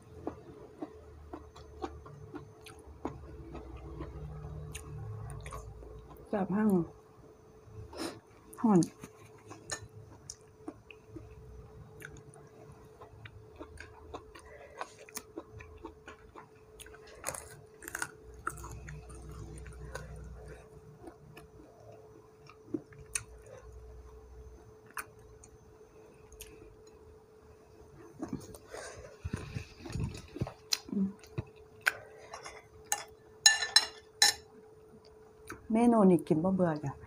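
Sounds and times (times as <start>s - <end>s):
person chewing food: 0.0s - 6.3s, 8.8s - 24.0s, 24.8s - 25.6s, 28.0s - 33.3s
faint steady hum: 0.0s - 37.0s.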